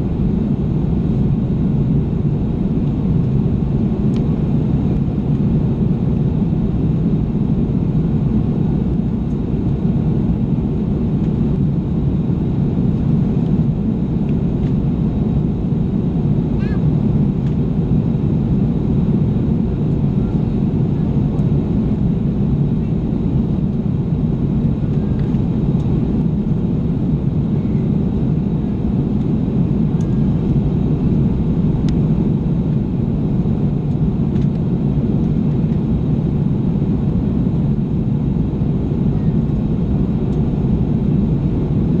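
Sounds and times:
airplane cabin engine rumble: 0:00.0 - 0:42.0.

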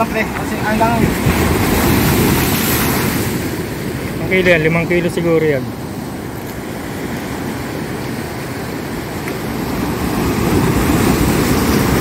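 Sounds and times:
sea surf breaking against rocks: 0:00.0 - 0:12.0.

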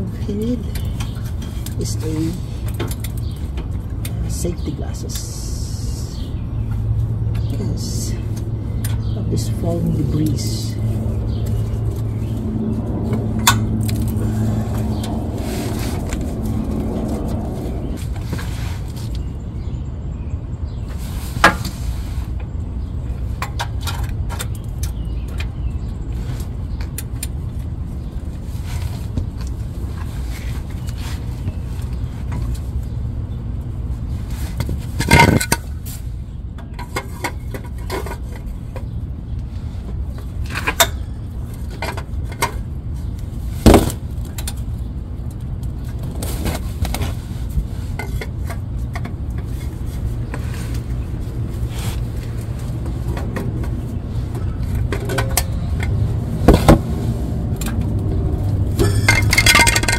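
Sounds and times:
low rumble: 0:00.7 - 0:20.1
metal tools clicking and scraping: 0:34.6 - 0:35.8, 0:58.7 - 0:59.9.

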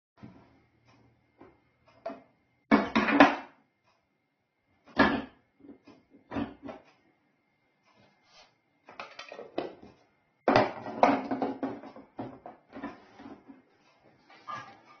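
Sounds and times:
plastic parts knocking and clicking: 0:02.0 - 0:03.6, 0:08.9 - 0:13.5.

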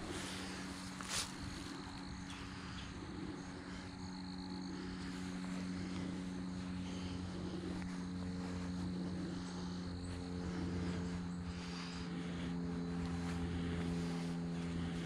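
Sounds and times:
engine drone: 0:00.0 - 0:15.0.

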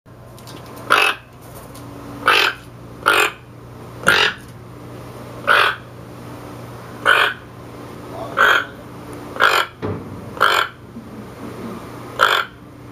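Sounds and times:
toucan croaking: 0:00.9 - 0:01.3, 0:02.2 - 0:04.5, 0:05.4 - 0:05.9, 0:07.0 - 0:07.5, 0:08.2 - 0:09.8, 0:10.4 - 0:10.9, 0:12.1 - 0:12.7.

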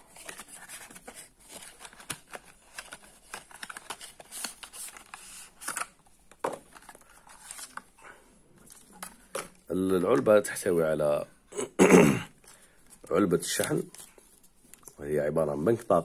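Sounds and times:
paper rustles: 0:00.0 - 0:05.9, 0:06.7 - 0:08.0.

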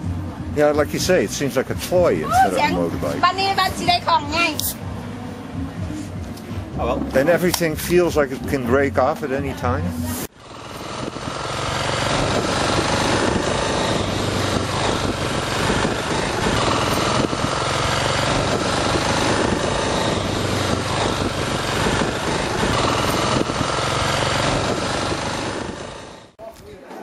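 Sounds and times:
road noise: 0:00.0 - 0:26.4
motorcycle engine running: 0:10.2 - 0:26.4
wind noise: 0:12.0 - 0:25.8.

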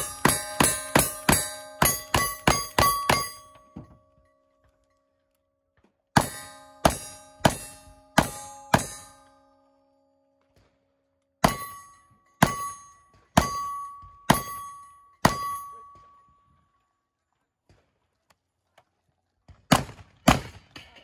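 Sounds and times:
steel target ringing: 0:00.0 - 0:04.4, 0:06.2 - 0:10.3, 0:11.4 - 0:16.4.

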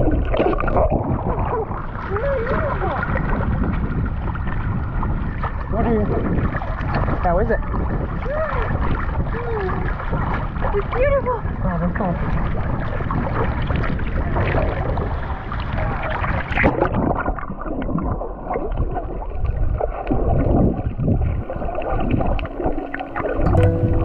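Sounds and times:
splash into water: 0:00.0 - 0:04.7, 0:12.2 - 0:23.4
muffled underwater bubbling: 0:00.0 - 0:24.0
seawater sloshing and splashing: 0:00.0 - 0:24.0.

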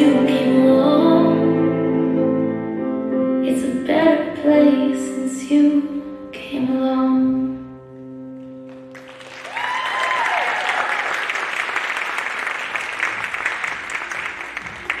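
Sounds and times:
audience applause: 0:08.8 - 0:15.0
person whooping: 0:09.5 - 0:11.2.

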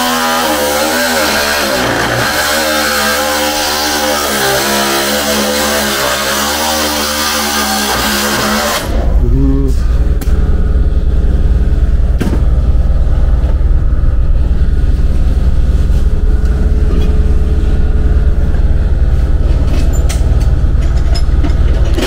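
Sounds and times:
loud low rumble: 0:08.8 - 0:22.0.

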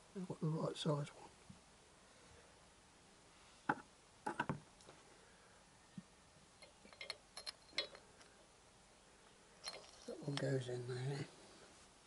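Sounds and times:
metal bolt clicking and clinking: 0:06.6 - 0:08.1.

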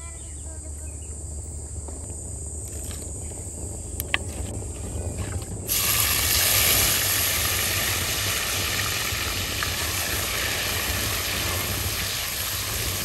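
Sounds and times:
hot oil sizzling in a pot: 0:05.7 - 0:13.0.

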